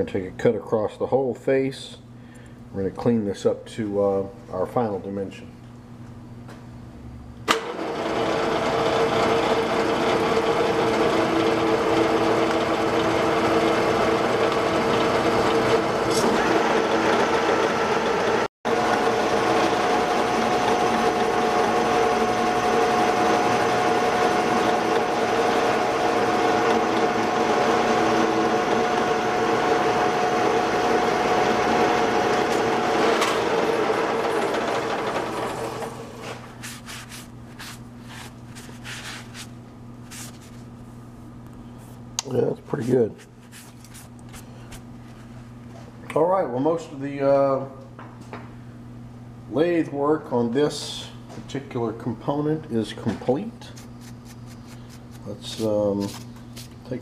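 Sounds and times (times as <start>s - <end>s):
metal lathe whining: 7.5s - 36.2s.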